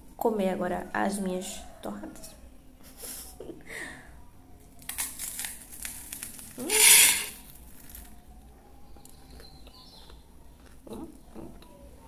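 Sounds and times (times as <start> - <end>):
crunching toast being chewed: 4.8 - 6.6, 7.3 - 8.4, 9.0 - 11.7.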